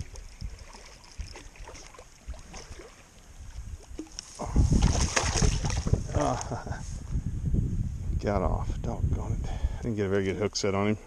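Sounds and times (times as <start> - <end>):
fish splashing and thrashing in water: 0.0 - 3.2, 3.8 - 6.1.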